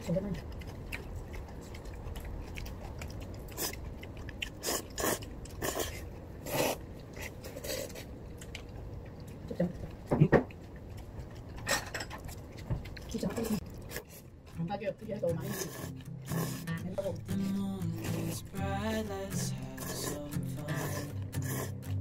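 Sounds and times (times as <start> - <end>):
person chewing food: 0.0 - 14.6, 15.5 - 22.0
slurps: 15.4 - 16.8, 19.4 - 22.0.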